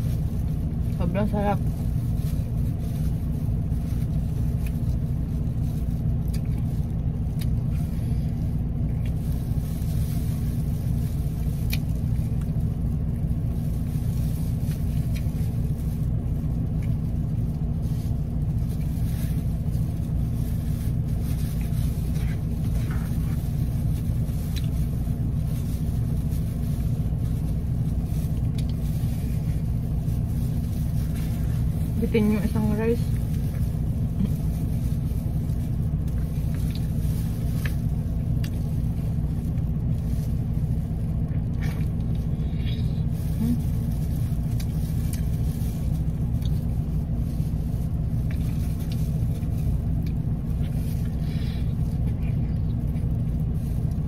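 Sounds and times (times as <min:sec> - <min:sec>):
car engine idling: 0:00.0 - 0:54.0
faint clicks of food handling: 0:03.8 - 0:31.7, 0:33.2 - 0:42.3, 0:43.1 - 0:46.9.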